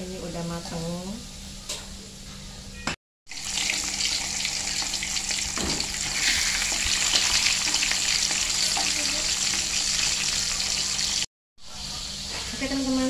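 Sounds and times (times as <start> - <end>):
fish sizzling in hot oil: 3.3 - 13.0.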